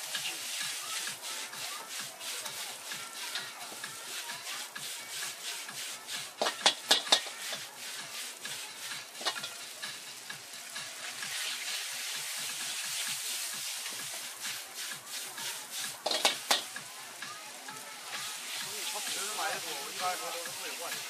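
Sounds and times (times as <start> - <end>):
noodles sizzling in a wok: 0.0 - 21.0
metal ladle clacking against wok: 6.4 - 7.4, 9.2 - 9.5, 16.0 - 16.7.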